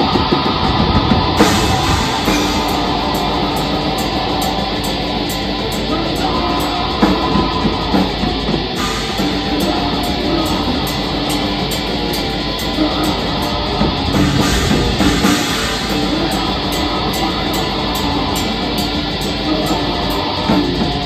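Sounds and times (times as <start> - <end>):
distorted electric guitars: 0.0 - 21.0
drum kit: 0.0 - 21.0.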